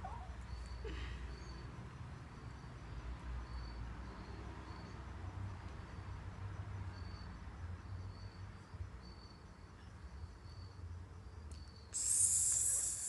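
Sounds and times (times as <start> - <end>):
insects chirping: 0.0 - 13.0
loud hiss: 12.0 - 13.0.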